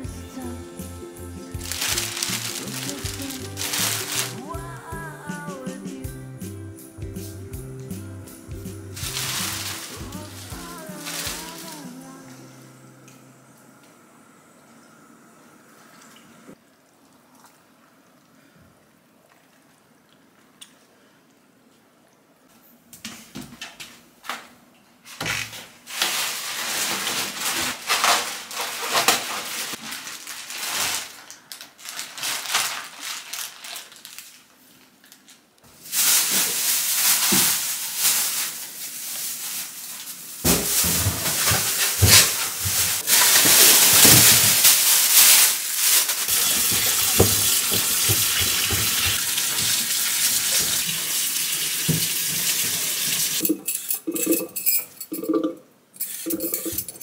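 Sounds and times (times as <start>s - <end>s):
cabbage leaves crinkling and squishing: 1.6s - 4.8s, 9.0s - 12.2s, 25.8s - 48.8s
kitchen tap running: 40.4s - 54.4s.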